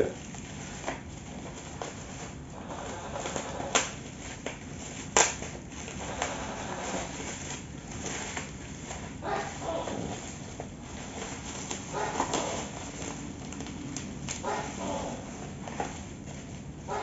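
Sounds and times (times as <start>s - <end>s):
bubble wrap snapping: 0.0s - 17.0s
plastic packaging crinkling: 0.0s - 17.0s.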